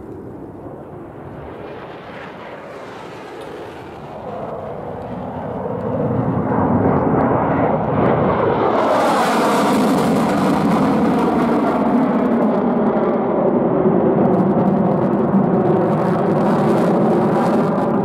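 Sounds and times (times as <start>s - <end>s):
jet engine rumble: 0.0s - 18.0s
jet taking off with hiss: 0.0s - 18.0s.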